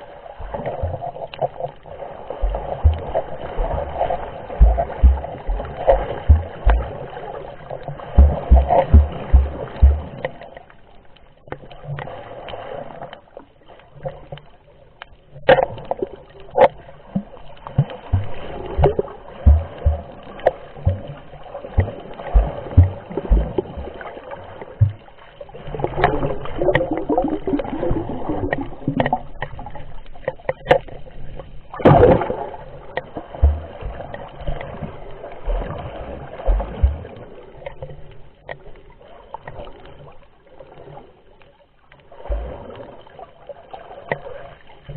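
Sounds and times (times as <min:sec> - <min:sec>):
underwater sloshing and gurgling: 0:00.0 - 0:44.9
low thumps: 0:02.4 - 0:07.2, 0:08.1 - 0:10.4, 0:18.1 - 0:24.0, 0:33.4 - 0:34.1, 0:36.5 - 0:37.1.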